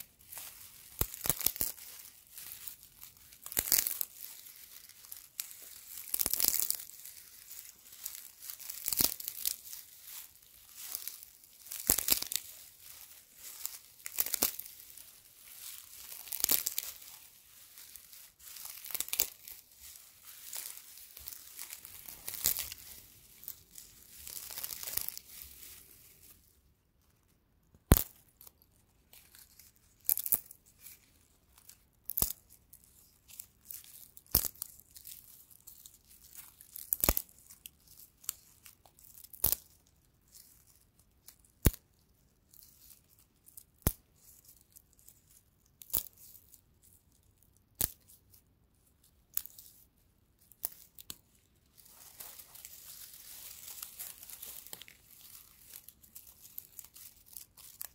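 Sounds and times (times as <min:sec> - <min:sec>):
dry straw rustling: 0:00.0 - 0:26.5, 0:50.7 - 0:57.9
straw stalks snapping: 0:00.3 - 0:26.4, 0:27.7 - 0:28.6, 0:29.2 - 0:30.6, 0:31.6 - 0:32.5, 0:33.7 - 0:35.2, 0:36.3 - 0:39.7, 0:41.4 - 0:41.8, 0:45.8 - 0:46.2, 0:47.8 - 0:48.1, 0:50.5 - 0:57.9.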